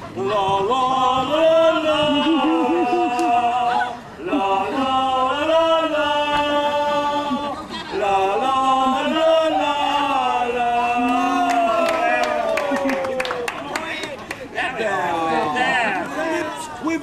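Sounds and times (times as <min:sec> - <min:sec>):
person singing wordless tune: 0:00.1 - 0:11.6.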